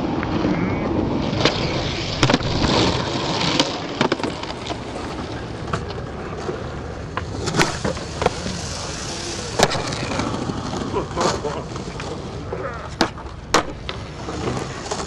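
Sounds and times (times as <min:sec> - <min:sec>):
skateboard popping and landing: 0:00.0 - 0:15.0
skateboard wheels rolling on concrete: 0:00.0 - 0:15.0.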